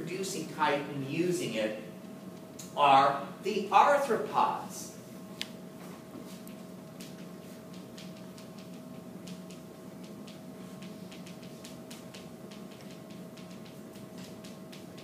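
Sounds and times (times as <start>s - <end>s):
steady room hum: 0.0s - 15.0s
chalk tapping and scratching: 10.2s - 15.0s.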